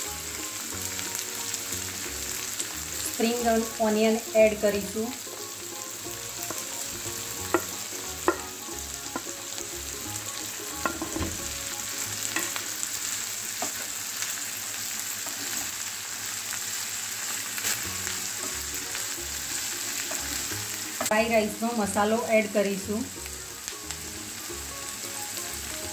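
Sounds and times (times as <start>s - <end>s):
vegetables sizzling in oil: 0.0s - 25.9s
spatula tapping a pan: 6.4s - 9.4s, 10.8s - 11.5s.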